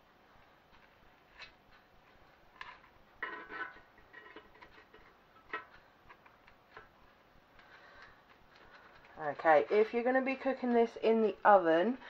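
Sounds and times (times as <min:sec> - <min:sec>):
spatula scraping metal basket: 0:08.7 - 0:11.6.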